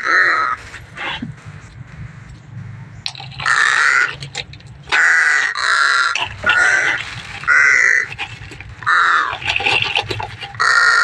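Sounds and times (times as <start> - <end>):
bird giving harsh calls: 3.1 - 11.0.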